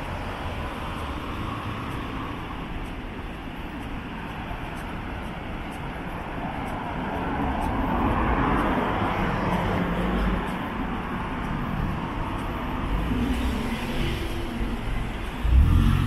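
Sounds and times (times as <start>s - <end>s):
city street traffic: 0.0s - 16.0s
vehicle passing by: 13.0s - 16.0s.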